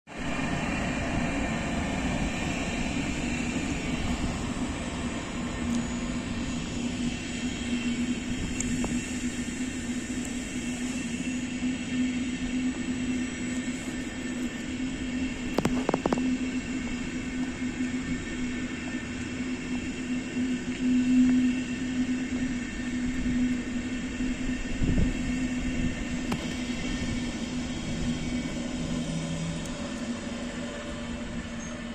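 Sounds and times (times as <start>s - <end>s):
low hum: 0.1s - 31.9s
train wheels rumbling on rails: 0.1s - 31.9s.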